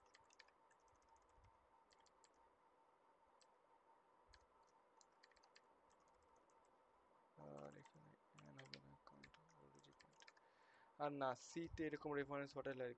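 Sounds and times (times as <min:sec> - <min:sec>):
computer keyboard keystrokes: 0:00.0 - 0:02.4, 0:05.0 - 0:06.3, 0:07.6 - 0:10.4.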